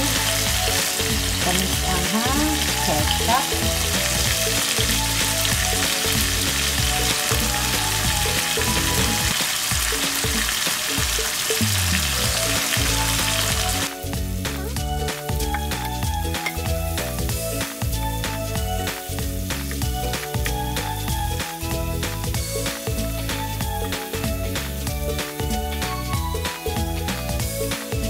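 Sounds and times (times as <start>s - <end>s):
food sizzling in a wok: 0.0s - 26.6s.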